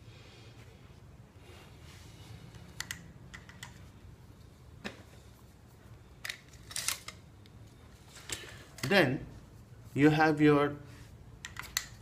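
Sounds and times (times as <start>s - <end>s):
plastic pipes clicking together: 11.4s - 12.0s.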